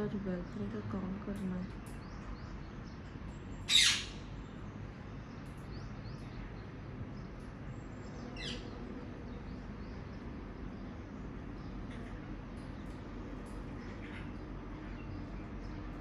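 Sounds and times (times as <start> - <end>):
parakeet screeching: 3.7 - 4.2.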